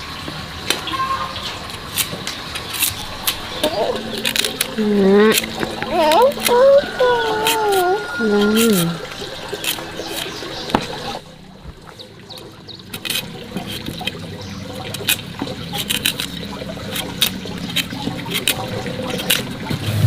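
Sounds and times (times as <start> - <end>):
cleaver scraping root: 1.7 - 10.9, 12.9 - 14.2, 14.9 - 20.0.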